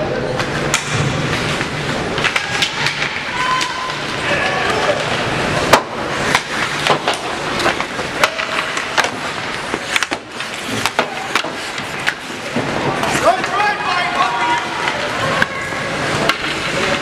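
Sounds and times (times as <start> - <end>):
arena background noise: 0.0 - 17.0
hockey sticks and puck clacking: 0.1 - 17.0
skates scraping ice: 0.2 - 17.0.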